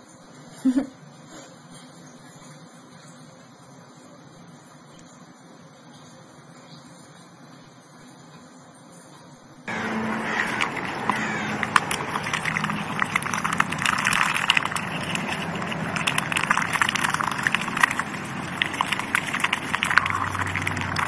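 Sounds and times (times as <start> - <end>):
ducks dabbling with wet clicks: 9.7 - 21.0.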